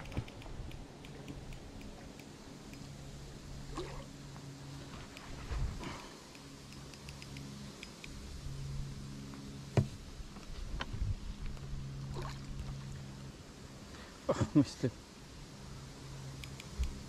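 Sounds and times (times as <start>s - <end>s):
water splashing: 12.0s - 13.0s.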